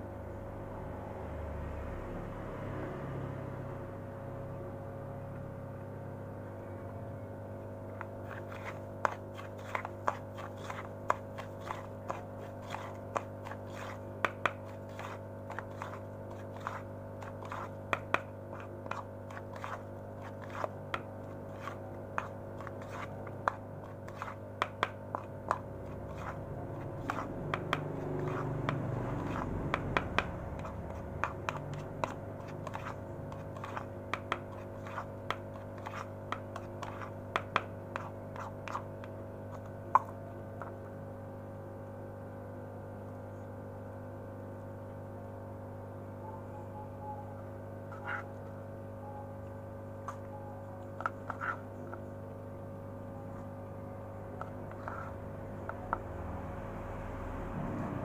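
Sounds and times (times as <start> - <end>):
spoon scraping pellets in bowl: 8.0 - 40.7, 47.9 - 48.4, 50.0 - 52.1, 54.4 - 56.0.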